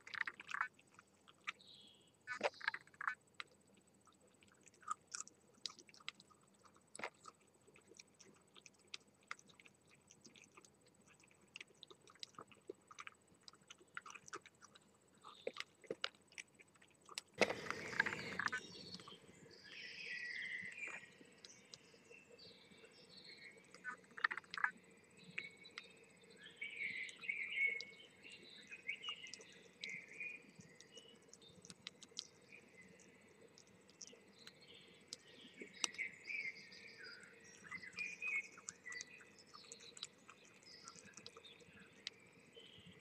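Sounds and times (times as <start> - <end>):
fox chewing and crunching food: 0.0 - 43.0.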